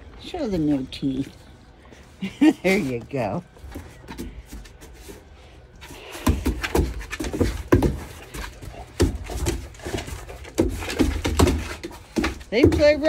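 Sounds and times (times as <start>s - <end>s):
puppies panting: 5.7s - 12.9s.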